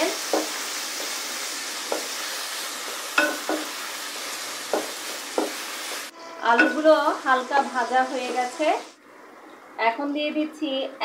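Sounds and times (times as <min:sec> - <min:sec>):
potatoes and onion sizzling in oil: 0:00.0 - 0:09.0
spatula knocking and scraping pot: 0:00.3 - 0:01.2, 0:03.2 - 0:03.8, 0:04.6 - 0:05.6, 0:06.6 - 0:06.9.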